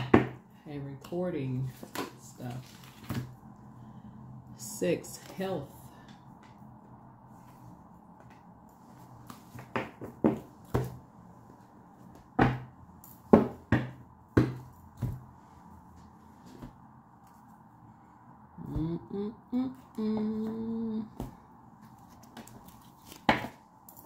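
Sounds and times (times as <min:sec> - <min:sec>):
cards knocking on a tabletop: 0:09.5 - 0:11.0.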